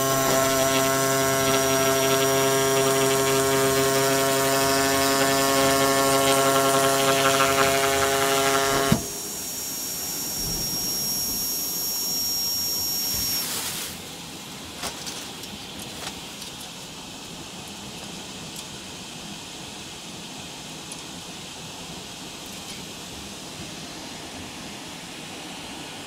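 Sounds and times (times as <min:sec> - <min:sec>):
high machine whine: 0:00.0 - 0:15.8.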